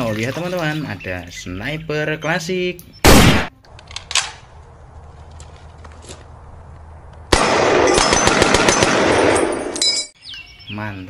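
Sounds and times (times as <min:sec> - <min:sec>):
rifle fire burst: 0:03.0 - 0:03.5, 0:07.3 - 0:09.7.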